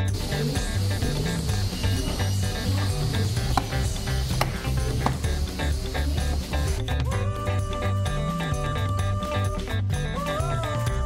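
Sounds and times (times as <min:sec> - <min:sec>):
background music with bass line: 0:00.0 - 0:11.0.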